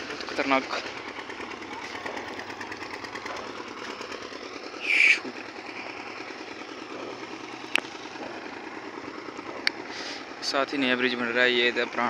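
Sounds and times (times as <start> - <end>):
bridge deck rattling: 0.0 - 4.8.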